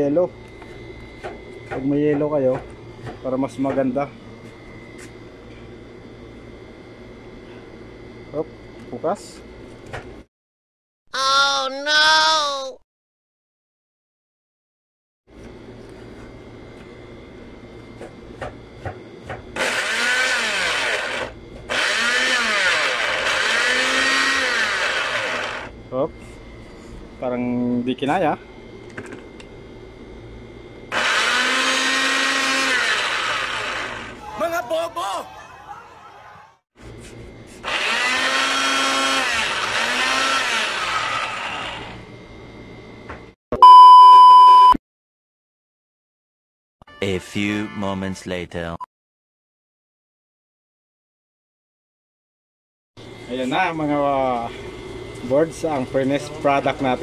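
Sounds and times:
blender motor blending: 0:19.6 - 0:25.7, 0:30.9 - 0:34.2, 0:37.6 - 0:42.1
loud electronic beep: 0:43.6 - 0:44.8.

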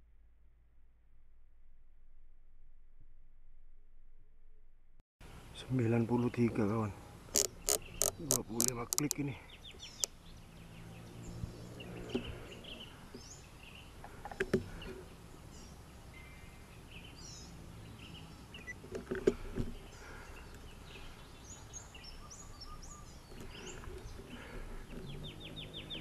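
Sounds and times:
small birds chirping: 0:05.2 - 0:26.0
steady outdoor hiss: 0:05.2 - 0:26.0.

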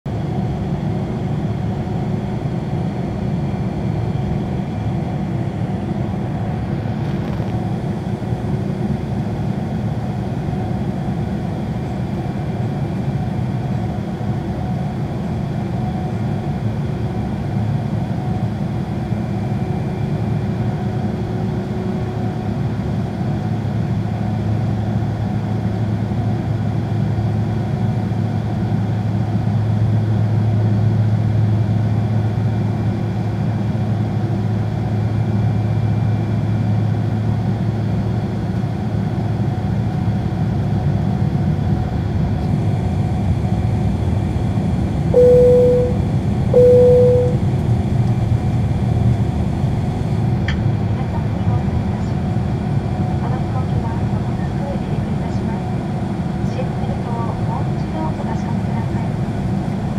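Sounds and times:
jet engines low rumble: 0:00.1 - 0:59.9.

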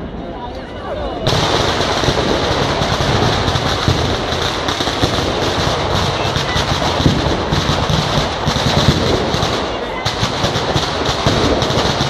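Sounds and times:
firecrackers crackling: 0:01.1 - 0:12.0.

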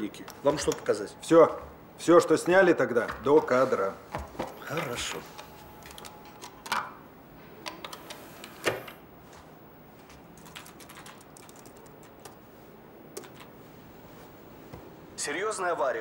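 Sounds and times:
computer keyboard typing: 0:05.8 - 0:06.8, 0:10.1 - 0:12.4, 0:13.1 - 0:13.5.

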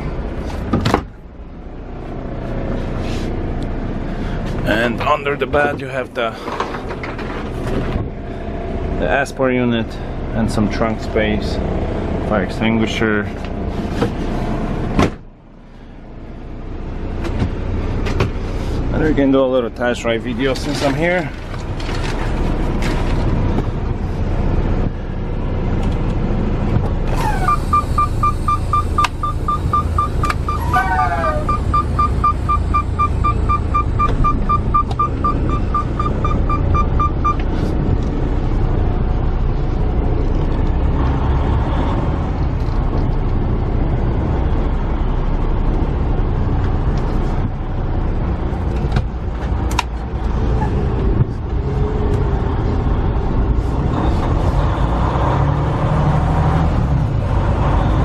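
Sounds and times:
diesel engine low rumble: 0:00.0 - 0:58.0
dashboard warning chime beeping: 0:27.3 - 0:37.5
falling alert tone: 0:29.5 - 0:32.2.

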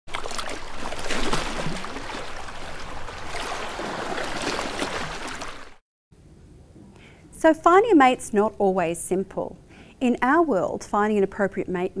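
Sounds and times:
water splashing and flowing: 0:00.1 - 0:05.8.

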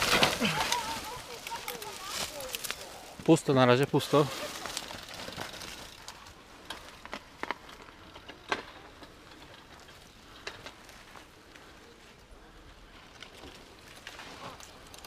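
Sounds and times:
twigs snapping: 0:00.0 - 0:03.4, 0:04.2 - 0:08.7
dry twigs and leaves crackling: 0:00.0 - 0:15.0
quiet outdoor hush: 0:00.0 - 0:15.0.

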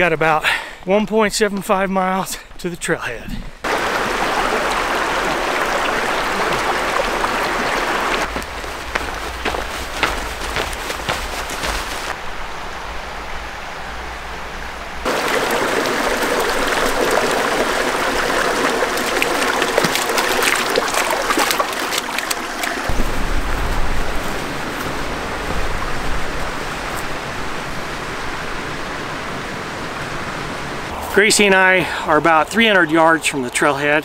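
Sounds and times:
stream trickling over rocks: 0:03.6 - 0:12.2, 0:15.0 - 0:29.2.

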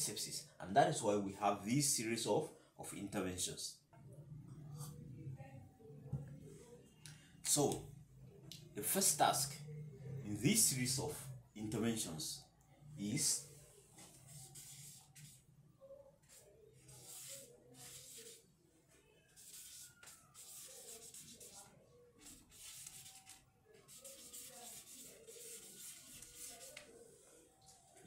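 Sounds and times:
marker pen scratching on paper: 0:14.0 - 0:15.5, 0:16.2 - 0:18.4, 0:19.3 - 0:26.9.

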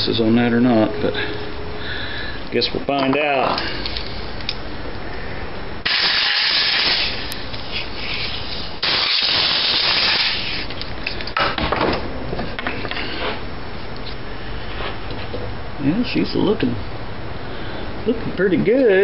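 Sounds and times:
air blow gun hissing: 0:05.8 - 0:10.7.

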